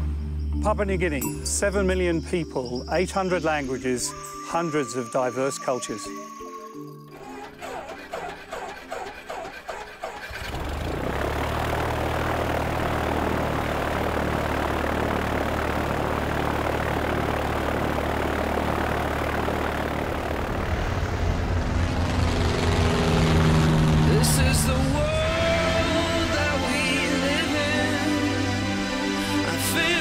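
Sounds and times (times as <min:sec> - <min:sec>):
turboprop engines at takeoff power: 0:07.6 - 0:30.0.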